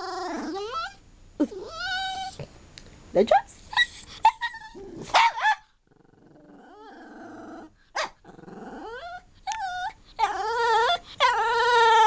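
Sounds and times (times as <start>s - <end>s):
dog yipping and whining: 0.0s - 2.4s, 3.7s - 5.6s, 8.7s - 12.0s.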